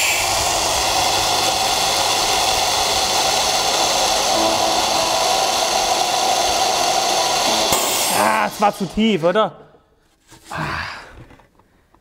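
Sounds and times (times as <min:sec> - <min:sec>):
boring machine running: 0:00.0 - 0:09.1.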